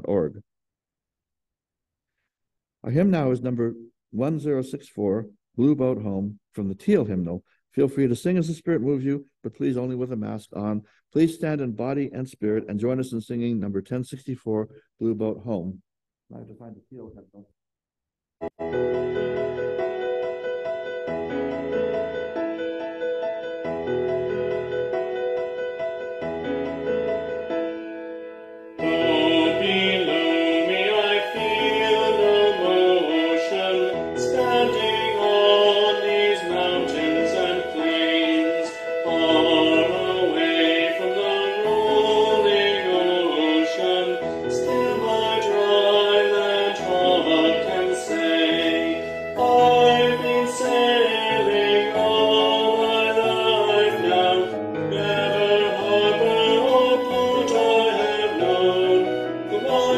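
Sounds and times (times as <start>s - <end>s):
man singing a hymn: 28.8s - 59.9s.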